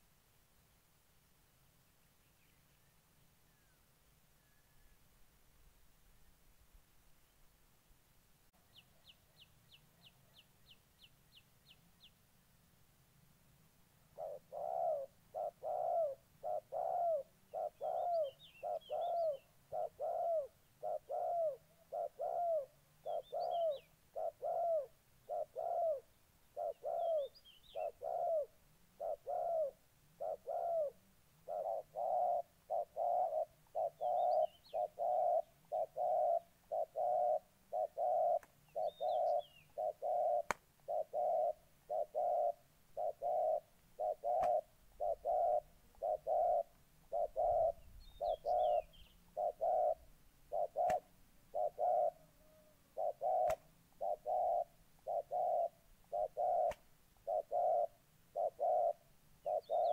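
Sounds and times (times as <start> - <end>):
small birds chirping: 8.6 - 12.2, 14.1 - 52.3, 53.0 - 59.9
doves cooing: 14.1 - 59.9.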